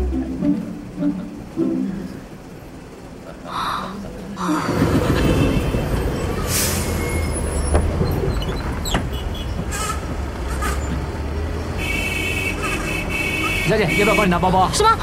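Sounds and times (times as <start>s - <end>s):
steady high tone: 0.0s - 3.1s
bus engine rumbling: 0.0s - 15.0s
bus doors clicking: 4.0s - 11.2s
air brake hisses: 6.4s - 7.3s.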